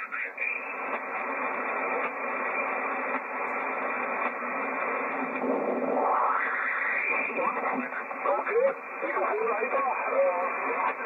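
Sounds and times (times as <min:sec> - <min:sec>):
radio receiver hiss: 0:00.0 - 0:11.0
radio voice with gliding pitch: 0:07.0 - 0:11.0.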